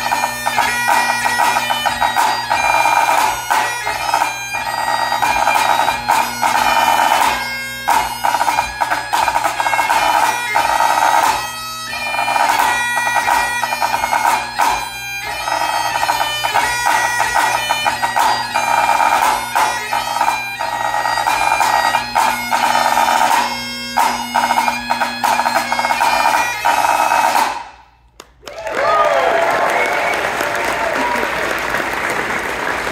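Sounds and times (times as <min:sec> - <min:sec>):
snare drum: 0:00.0 - 0:04.3, 0:05.2 - 0:11.5, 0:12.2 - 0:14.9, 0:15.5 - 0:27.8
bagpipe playing a brisk tune: 0:00.0 - 0:28.0.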